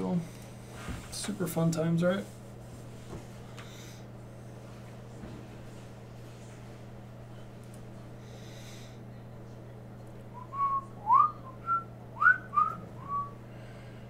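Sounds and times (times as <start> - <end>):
steady low hum: 0.0 - 14.0
person whistling a tune: 10.4 - 13.4.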